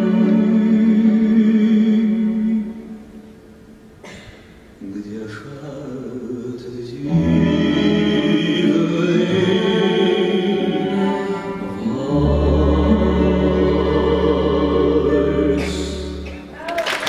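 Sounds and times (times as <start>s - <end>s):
strings guitar and bayan playing waltz: 7.0s - 16.5s.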